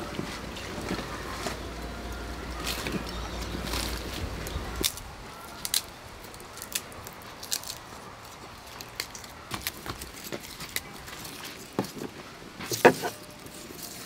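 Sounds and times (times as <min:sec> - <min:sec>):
garlic skins crackling: 0:00.0 - 0:14.0.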